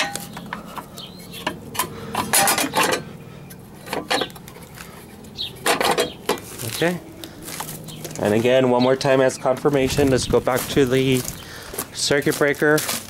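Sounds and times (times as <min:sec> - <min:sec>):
metallic clicks and clatter: 0:00.0 - 0:04.8.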